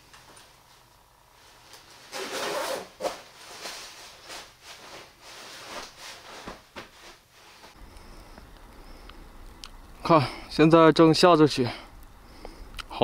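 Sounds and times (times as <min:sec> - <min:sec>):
clothing rustling: 0:00.2 - 0:07.8.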